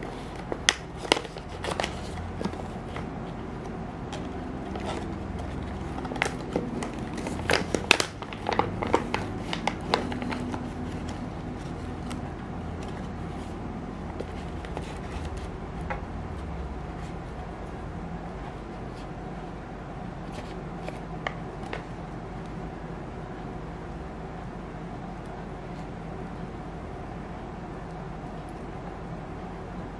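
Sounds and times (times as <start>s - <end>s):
foil bag crinkling and crackling: 4.5s - 12.2s.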